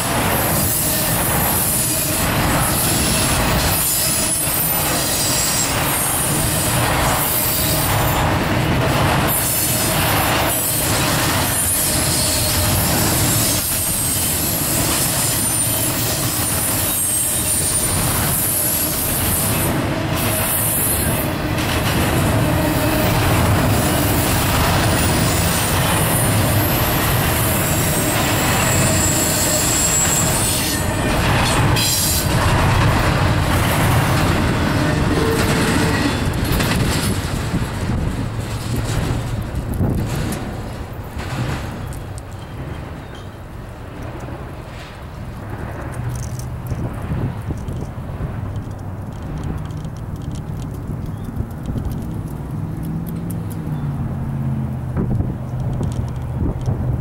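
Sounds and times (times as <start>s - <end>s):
train wheels rumbling on rail: 0.0s - 57.0s
high-pitched wheel squeal: 11.5s - 19.6s, 26.6s - 32.3s
clicks over rail joints: 31.1s - 53.8s, 54.9s - 57.0s.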